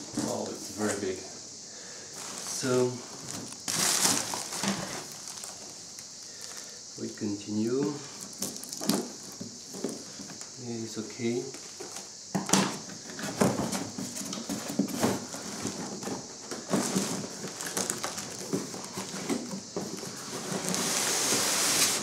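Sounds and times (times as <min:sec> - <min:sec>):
cardboard lid sliding hiss: 0:00.0 - 0:06.9, 0:11.2 - 0:22.0
cardboard box scraping and rustling: 0:13.0 - 0:22.0.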